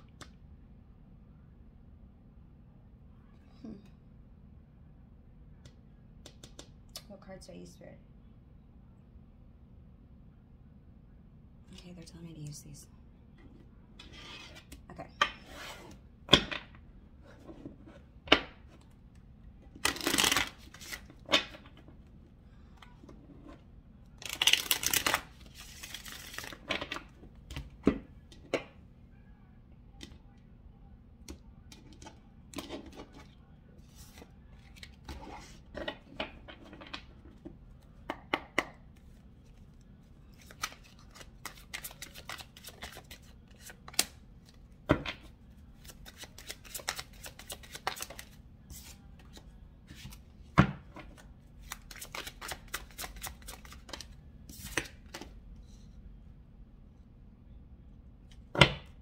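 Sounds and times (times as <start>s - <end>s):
cards shuffling: 19.7s - 21.9s, 24.2s - 27.1s, 31.7s - 37.4s, 38.9s - 50.2s, 51.0s - 55.3s.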